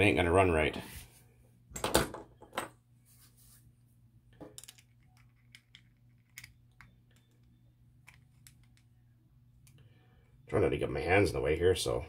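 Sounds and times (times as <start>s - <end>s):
low steady hum: 0.0s - 12.0s
small metal parts clicking: 4.5s - 8.8s.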